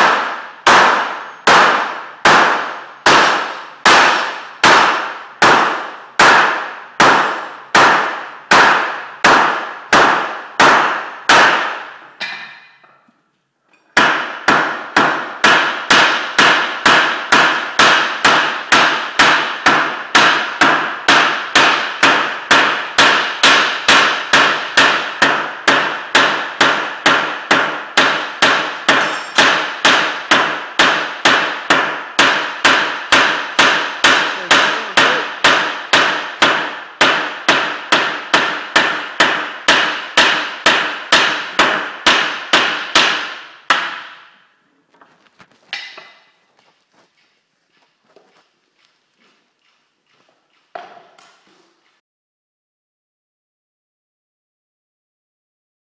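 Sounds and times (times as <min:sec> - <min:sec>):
hammer striking hot rivet: 0:00.0 - 0:13.1, 0:13.7 - 0:44.5, 0:45.5 - 0:52.0.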